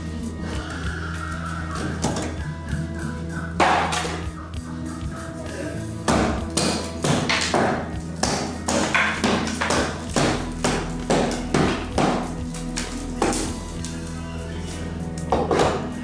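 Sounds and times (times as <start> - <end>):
hammer striking wooden planks: 6.1 - 13.6.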